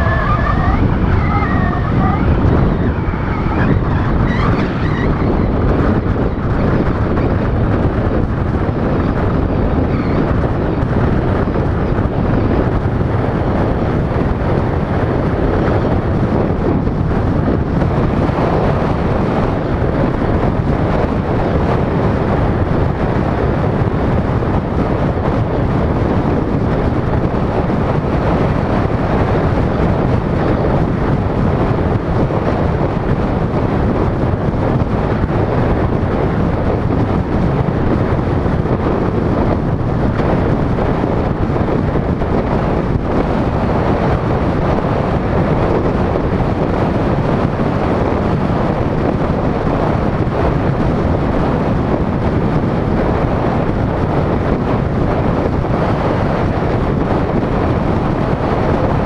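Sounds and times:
car road and tyre noise: 0.0s - 59.0s
wind noise on microphone: 0.0s - 59.0s.

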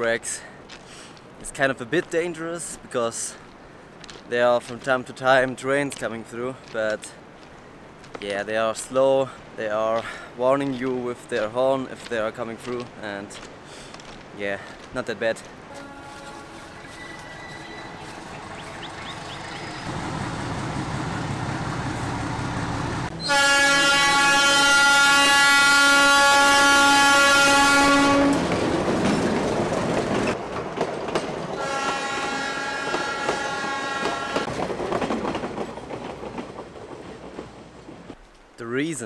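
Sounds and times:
train horn blast: 15.7s - 18.1s, 23.2s - 28.5s, 31.6s - 34.5s
train rumbling on tracks: 15.7s - 38.2s.

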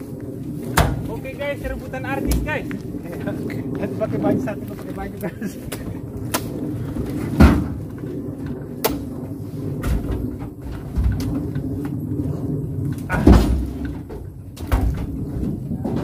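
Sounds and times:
heavy thuds and knocks: 7.3s - 7.9s.

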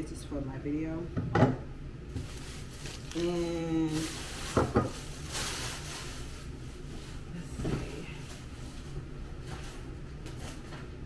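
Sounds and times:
plastic bags rustling: 2.1s - 10.7s.

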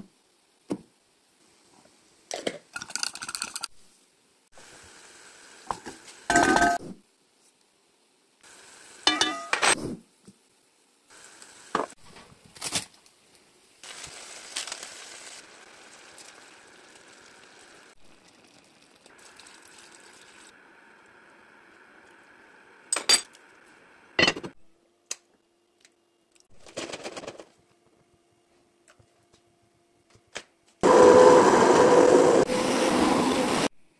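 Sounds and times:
low steady hiss: 0.0s - 26.4s
utensils clinking against pot: 9.1s - 9.7s.

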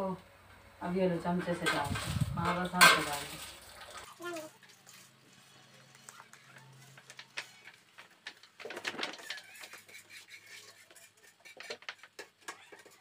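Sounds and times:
grains clicking on metal: 1.7s - 13.0s
rice scraped into metal pot: 9.1s - 13.0s.

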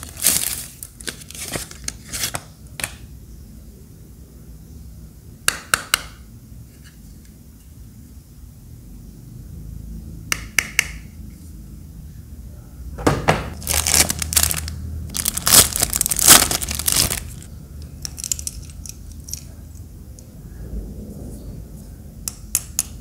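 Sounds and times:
plastic bag crinkling: 0.0s - 2.1s, 13.6s - 17.5s.

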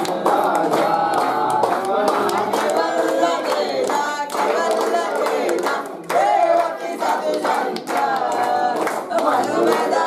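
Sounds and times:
hands clapping in time: 0.0s - 10.0s
small group singing: 0.0s - 10.0s.

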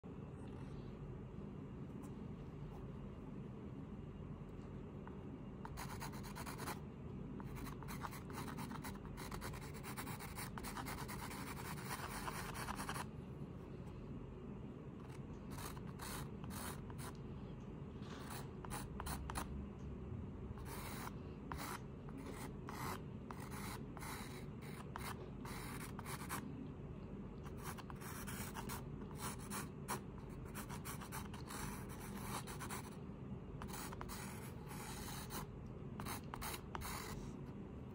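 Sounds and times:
steady low hum: 0.0s - 37.9s
pencil scratching on canvas: 7.5s - 13.0s, 20.6s - 26.4s.

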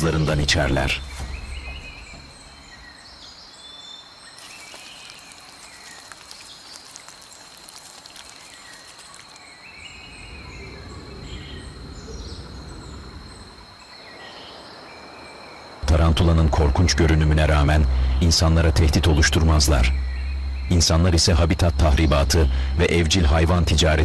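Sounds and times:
low rumble: 0.0s - 3.5s, 15.8s - 24.0s
bird or insect calls: 0.0s - 24.0s
high insect drone: 0.0s - 24.0s.

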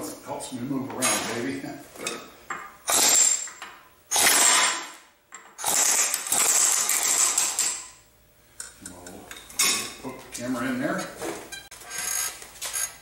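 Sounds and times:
pneumatic ratchet wrench: 2.9s - 4.9s, 5.6s - 7.8s, 11.9s - 13.0s.

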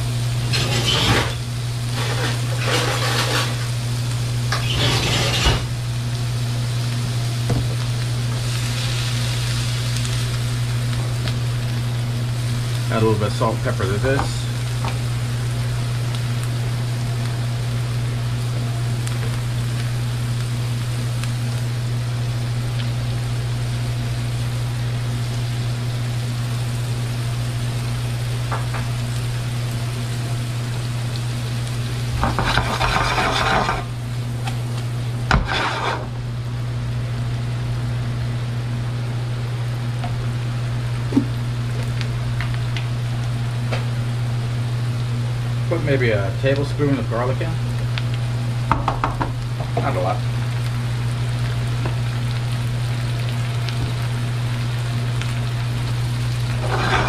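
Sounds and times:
onions sizzling in a frying pan: 0.0s - 57.0s
spatula stirring in a pan: 32.2s - 33.9s, 35.3s - 36.1s, 56.6s - 57.0s.

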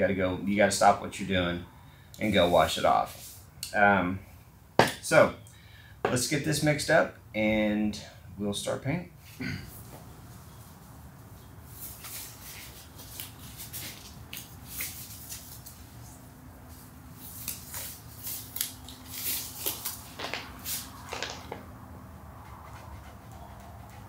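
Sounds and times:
rubber gloves pulled on: 11.7s - 21.5s
foil pouch crinkling: 17.3s - 21.5s.

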